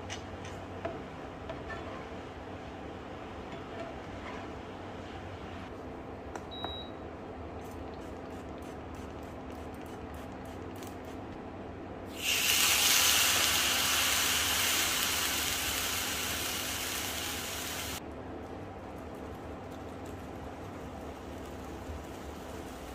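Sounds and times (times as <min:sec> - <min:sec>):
meat sizzling in skillet: 0:12.2 - 0:18.0.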